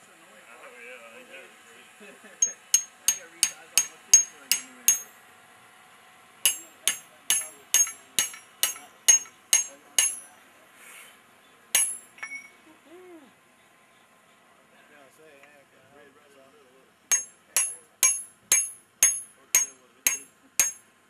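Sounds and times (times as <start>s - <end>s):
hammer striking chisel on anvil: 2.4s - 5.2s, 6.4s - 10.3s, 11.8s - 12.6s, 17.1s - 20.9s.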